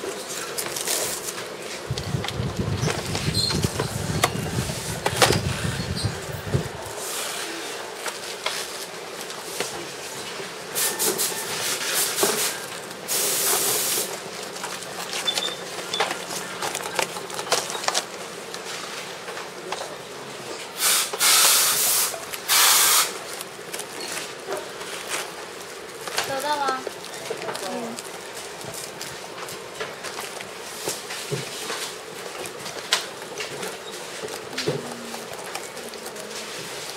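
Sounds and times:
background hum: 0.0s - 10.8s
loud hiss bursts: 10.8s - 14.1s, 20.8s - 23.2s
clicks and clatter of parts: 14.5s - 18.2s.

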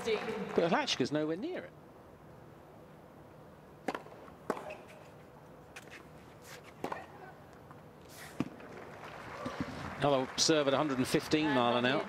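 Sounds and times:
tennis ball pops: 3.8s - 4.8s, 6.8s - 7.7s, 8.4s - 8.8s.

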